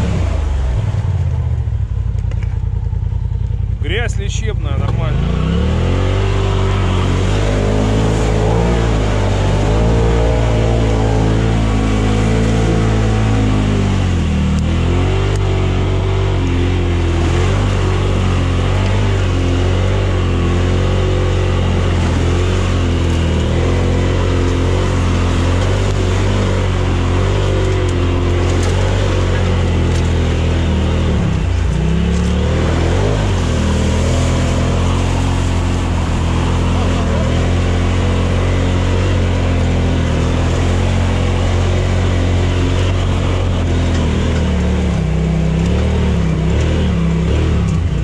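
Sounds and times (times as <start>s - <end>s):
buggy engine revving: 0.0s - 48.0s.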